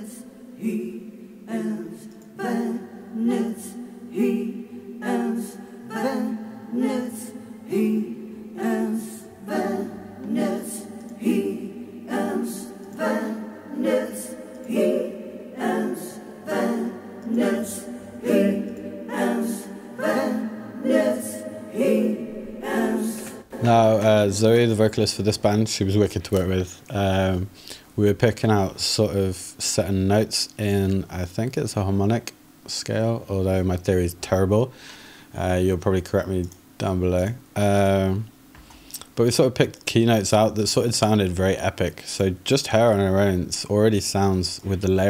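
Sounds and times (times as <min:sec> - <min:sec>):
choir chanting: 0:00.0 - 0:24.6.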